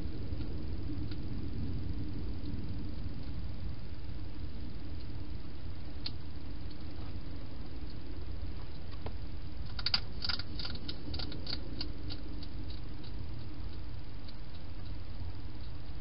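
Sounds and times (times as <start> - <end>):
hedgehog crunching food: 9.7 - 15.0.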